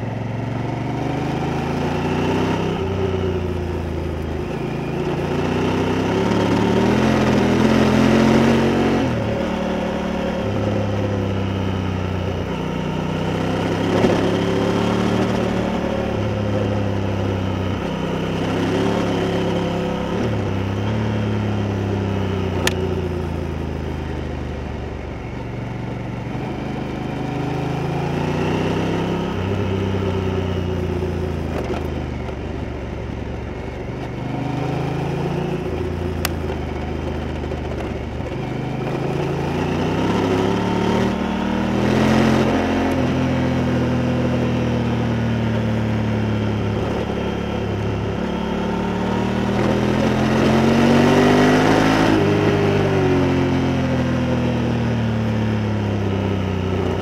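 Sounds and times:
motorcycle engine accelerating: 0:00.0 - 0:57.0
sharp click: 0:22.6 - 0:22.8.

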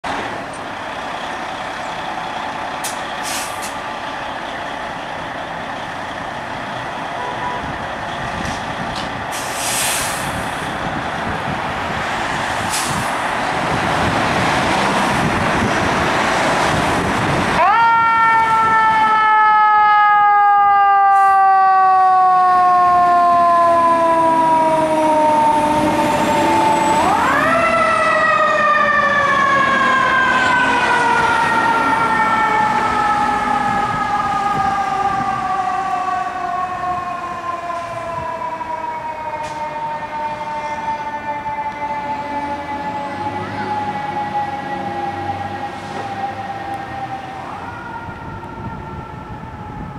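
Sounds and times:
fire engine diesel engine: 0:00.0 - 0:49.9
air hisses: 0:09.3 - 0:10.6
siren winding up and down: 0:17.6 - 0:49.9.

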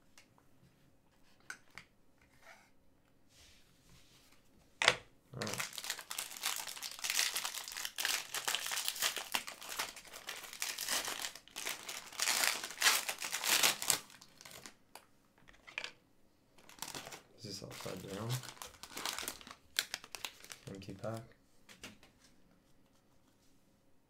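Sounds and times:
plastic wrapper crinkling: 0:05.4 - 0:15.0, 0:16.6 - 0:21.2.

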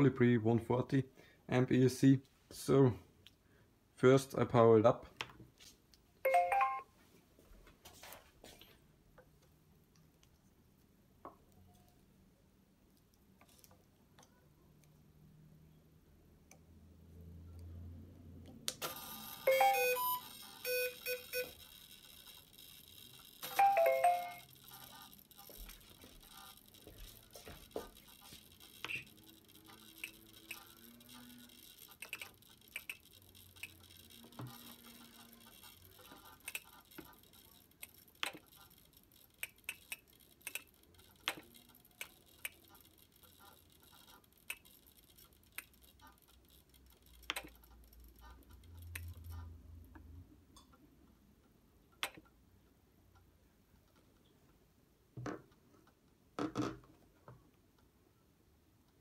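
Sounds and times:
short electronic beeps: 0:19.0 - 0:21.6.

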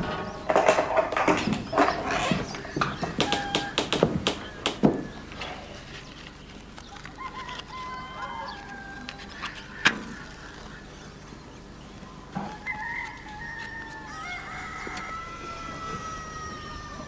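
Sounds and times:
sharp knocks: 0:00.0 - 0:05.2
bird calls: 0:00.0 - 0:17.0
chickens clucking: 0:00.0 - 0:17.0.

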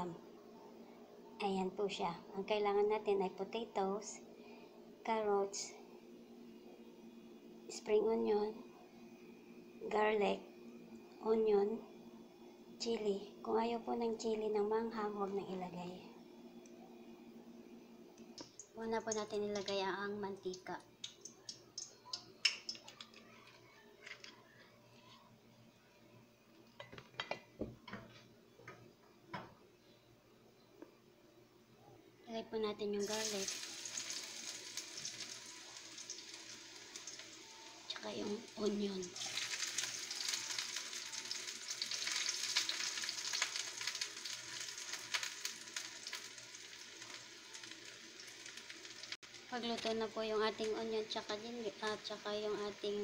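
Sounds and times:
oil crackling in pan: 0:18.4 - 0:19.8, 0:20.4 - 0:24.3, 0:33.0 - 0:53.0.

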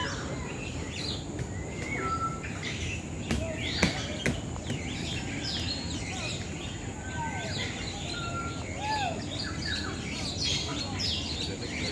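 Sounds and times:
low background noise: 0:00.0 - 0:11.9
small birds chirping and whistling: 0:00.0 - 0:11.9.

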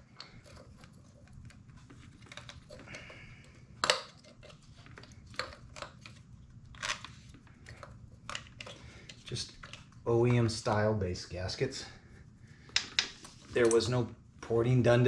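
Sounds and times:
handling clicks and rustles: 0:00.0 - 0:10.9.

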